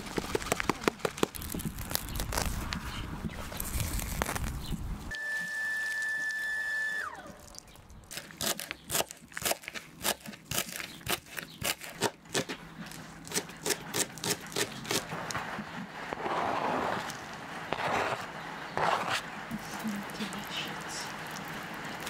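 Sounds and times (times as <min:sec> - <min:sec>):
scraping food off board: 0:16.1 - 0:19.3.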